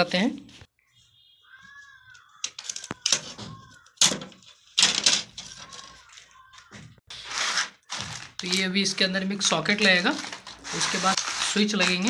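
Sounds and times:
plastic parts knocking on wood: 0:02.3 - 0:07.0
plastic clicks and snaps: 0:02.4 - 0:04.2.

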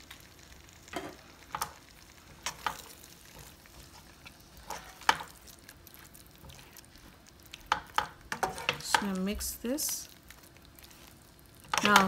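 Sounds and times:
spoon stirring thick gravy: 0:02.4 - 0:12.0.

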